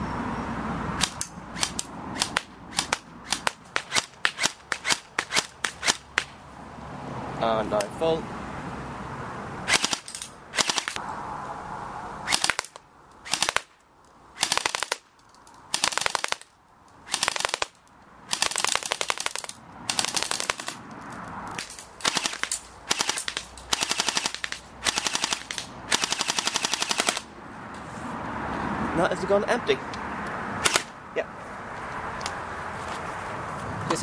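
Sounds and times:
airsoft rifle bursts: 9.7s - 11.0s.

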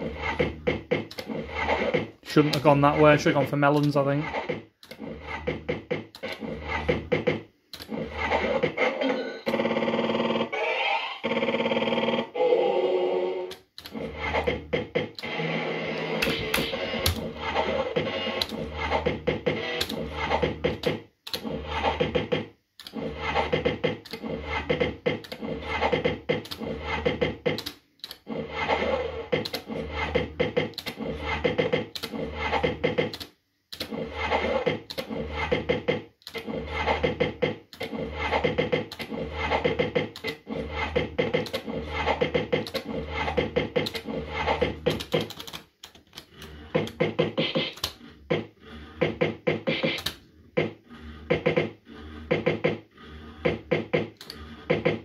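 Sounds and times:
electronic slot machine music: 46.4s - 52.7s.

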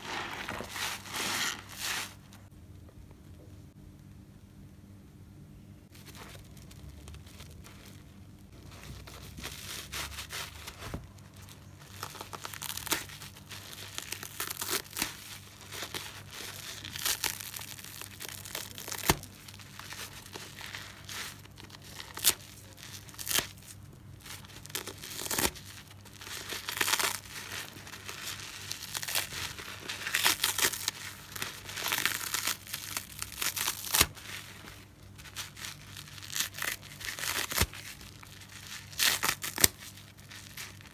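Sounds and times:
sponge foam ripping: 0.0s - 2.4s, 8.6s - 40.9s.

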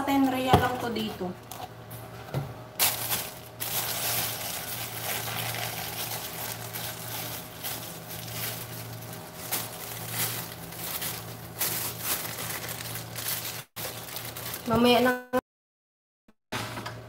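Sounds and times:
steady low hum: 0.0s - 14.5s
plastic bag rustling: 2.8s - 15.0s.

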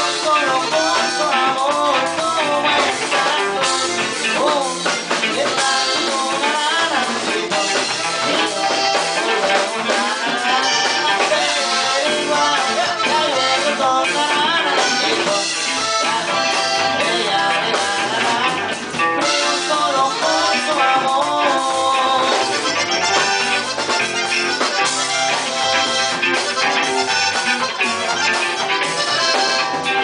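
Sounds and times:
accordion melody: 0.0s - 30.0s
drum kit: 0.0s - 30.0s
electric guitar: 0.0s - 30.0s
live band playing: 0.0s - 30.0s.

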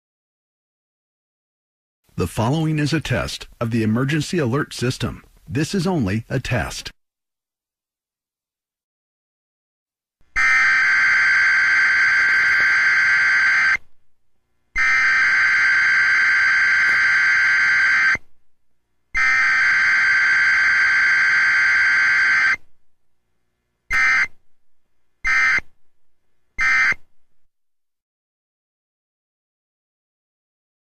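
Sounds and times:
harsh buzzing data tones: 10.3s - 13.8s, 14.8s - 18.2s, 19.2s - 22.6s, 23.9s - 24.4s, 25.2s - 25.7s.

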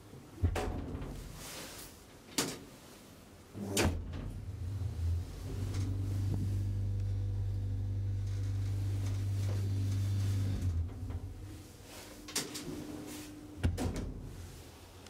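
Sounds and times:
elevator drive humming: 3.5s - 15.0s
elevator mechanism knocks: 13.6s - 14.4s.

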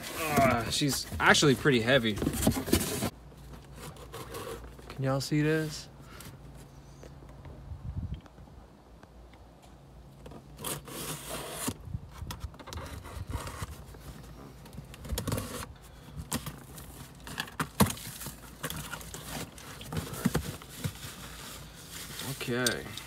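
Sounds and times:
cardboard flaps scraping: 0.0s - 4.8s.

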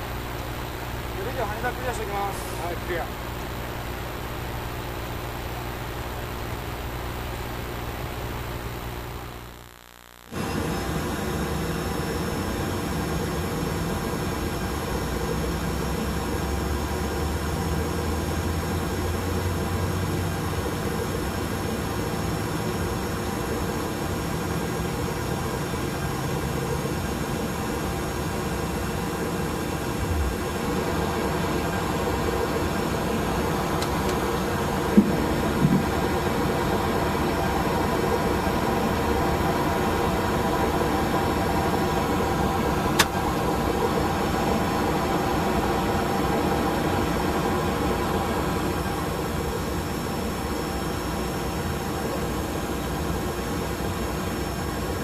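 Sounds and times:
aircraft cockpit rush and hum: 0.0s - 55.0s
sharp click: 43.0s - 43.2s.

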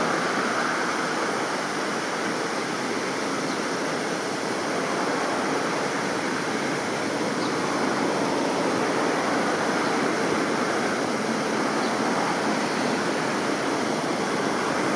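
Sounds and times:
steady rushing noise: 0.0s - 14.9s.

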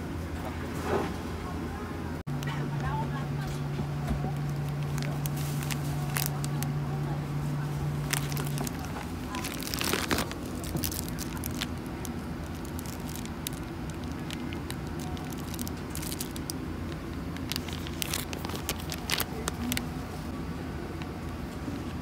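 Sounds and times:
airliner cabin hum: 0.0s - 22.0s
plastic wrapping crinkling: 4.3s - 6.8s, 7.8s - 20.3s.

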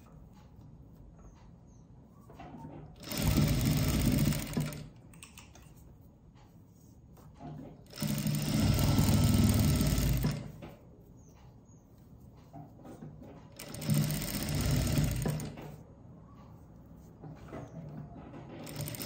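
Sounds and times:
sewing machine stitching: 2.6s - 5.0s, 7.5s - 10.6s, 13.2s - 15.8s, 17.4s - 19.0s.

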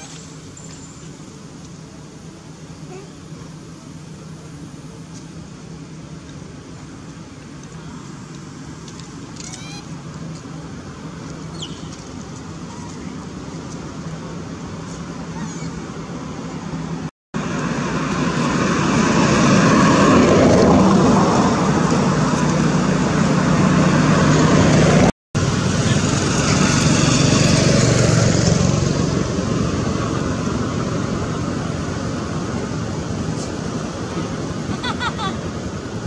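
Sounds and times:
vehicle passing by: 12.6s - 36.0s.

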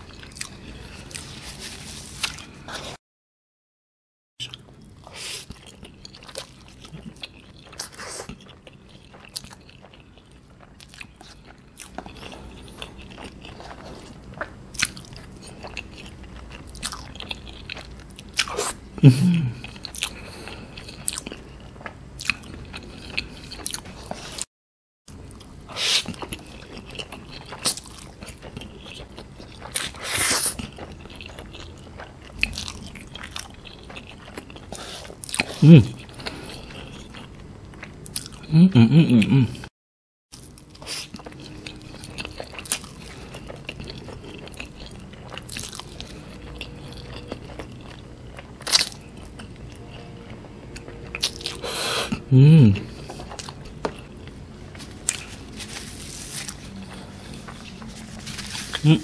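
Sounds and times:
wet chewing and lip smacking: 40.4s - 52.2s.

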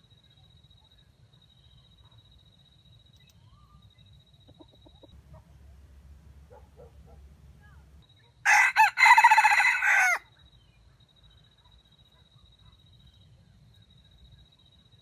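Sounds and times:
rooster crowing: 5.2s - 10.2s.

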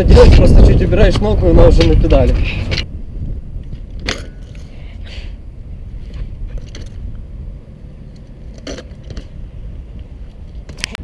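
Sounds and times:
wind rumble on microphone: 0.0s - 11.0s
bike clicks and knocks: 3.6s - 4.8s, 6.1s - 7.2s, 8.1s - 11.0s.

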